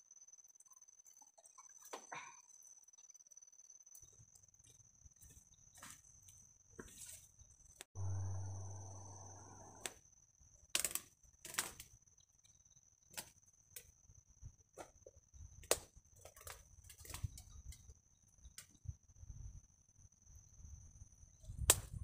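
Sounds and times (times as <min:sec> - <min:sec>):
loud abrupt sound: 0:08.0 - 0:09.9
steady high-pitched tone: 0:08.0 - 0:09.9.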